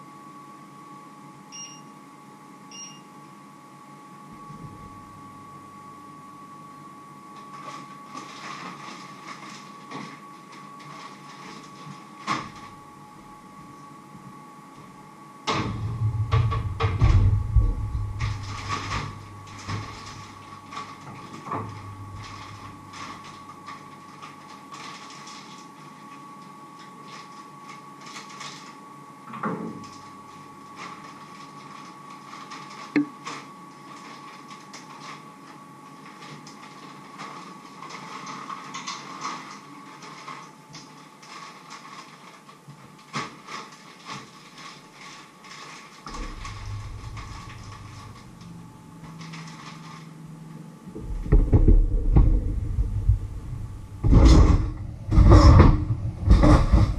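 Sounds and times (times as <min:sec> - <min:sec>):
vegetables rustling from plastic bag: 0:07.5 - 0:12.7, 0:18.3 - 0:26.1, 0:30.8 - 0:35.3, 0:35.9 - 0:48.3, 0:49.0 - 0:50.2.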